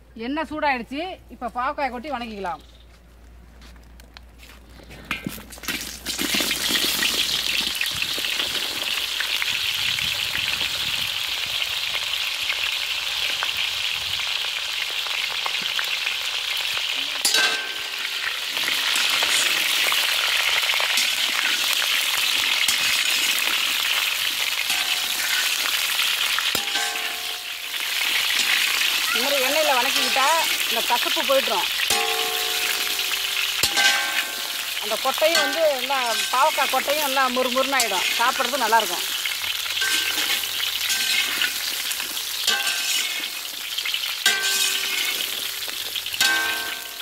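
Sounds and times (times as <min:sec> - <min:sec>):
vegetables sizzling in hot oil: 0:05.5 - 0:47.0
metal spatula clattering on pan: 0:17.2 - 0:18.2, 0:24.6 - 0:30.2, 0:31.9 - 0:36.8, 0:39.7 - 0:41.7, 0:42.4 - 0:43.5, 0:44.2 - 0:47.0.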